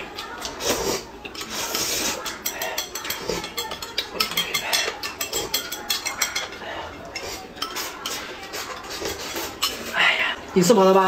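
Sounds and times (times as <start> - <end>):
chopsticks tapping a plate: 0.0 - 10.0
noodles being slurped: 0.0 - 10.5
spoon clinking in glass mug: 2.2 - 6.6.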